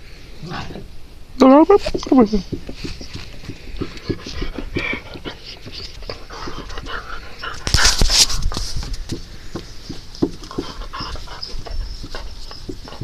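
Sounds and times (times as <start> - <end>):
dog panting: 2.9 - 8.6, 9.8 - 13.0.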